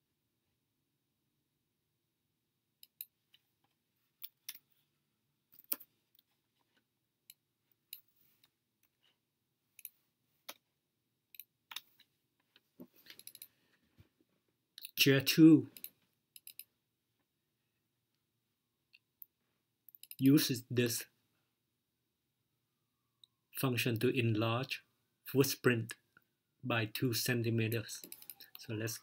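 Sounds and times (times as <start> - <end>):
keyboard and mouse clicks: 11.3 - 13.5, 15.8 - 16.7, 19.9 - 20.2, 28.0 - 28.6.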